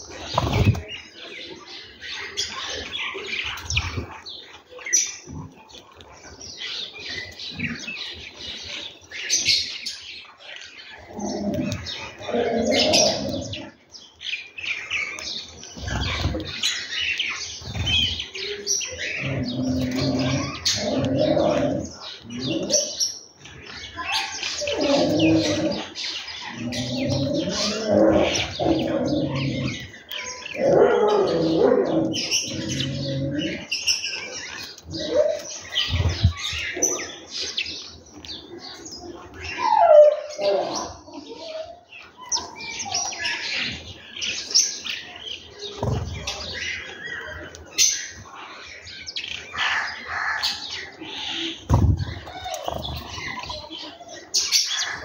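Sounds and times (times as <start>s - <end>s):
sparrows chirping: 0.0s - 55.0s.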